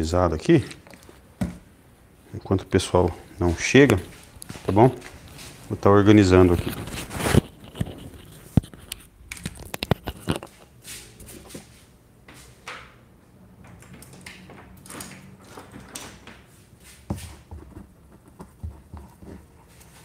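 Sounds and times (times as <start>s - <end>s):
soft rustling and handling: 0.4s - 1.7s, 2.3s - 12.6s, 16.4s - 20.0s.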